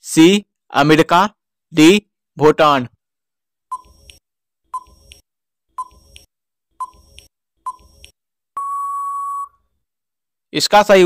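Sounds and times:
long steady beep: 8.6 - 9.6
short beeps: 8.6 - 9.6.

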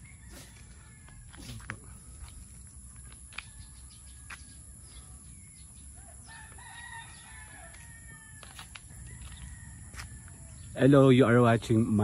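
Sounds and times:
distant rooster crowing: 0.0 - 1.9, 3.0 - 5.2, 5.9 - 10.8.

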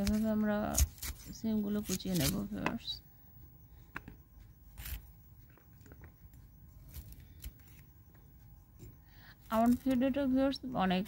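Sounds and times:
blade slicing bean pods: 0.0 - 3.0, 9.5 - 10.2.

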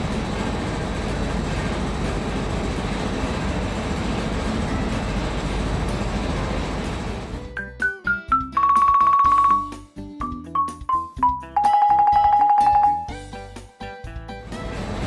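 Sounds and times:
conveyor belt rumbling and clattering: 0.0 - 7.6, 14.4 - 15.0.

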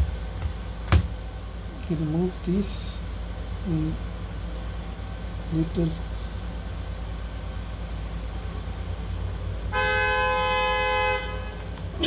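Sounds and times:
low street rumble: 0.0 - 12.0
vehicle horn: 9.7 - 11.7.

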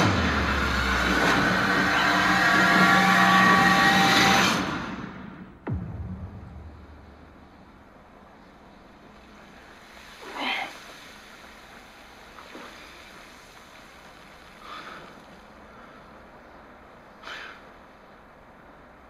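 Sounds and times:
wind hiss: 6.4 - 19.0.

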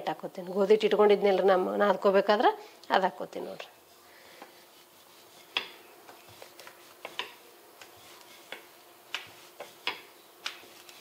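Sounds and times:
rolling pin knocking on stone: 8.5 - 10.7.

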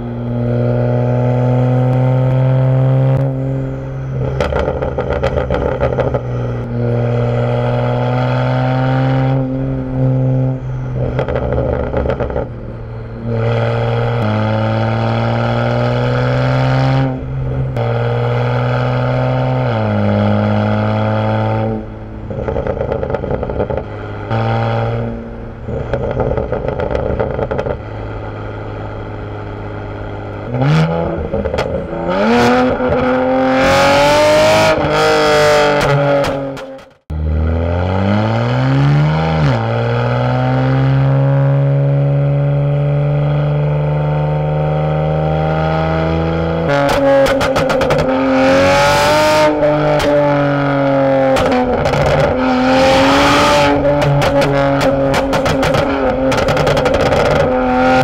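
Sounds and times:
car engine revving through gears: 0.0 - 58.0
exhaust pops and crackles: 4.2 - 6.3, 11.0 - 12.5, 22.3 - 24.4, 25.7 - 27.9, 30.3 - 32.0, 46.7 - 48.2, 51.3 - 52.4, 53.5 - 58.0.

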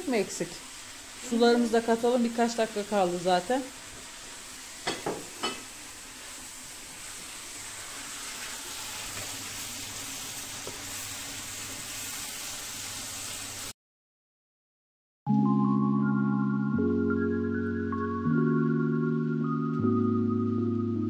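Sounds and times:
food sizzling in a pan: 0.0 - 13.8.

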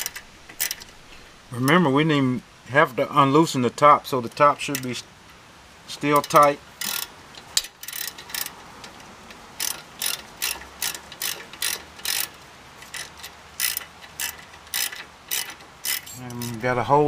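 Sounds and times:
ratchet wrench clicking: 6.2 - 16.6.

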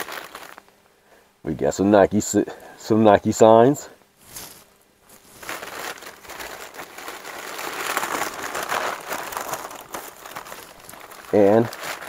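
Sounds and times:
packaging crinkling and rustling: 0.0 - 0.8, 4.2 - 12.0.

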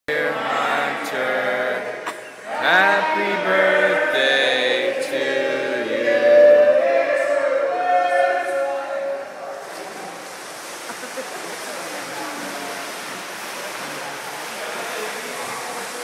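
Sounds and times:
group of people singing: 0.1 - 8.7.

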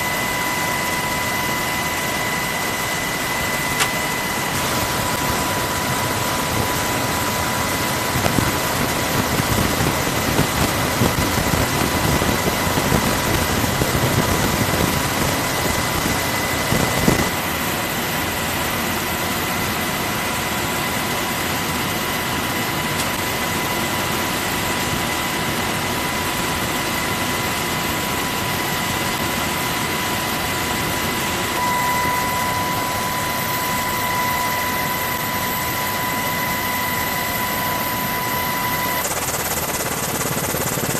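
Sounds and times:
high whine: 0.0 - 17.4, 31.2 - 40.9
helicopter cabin roar: 0.0 - 40.9.

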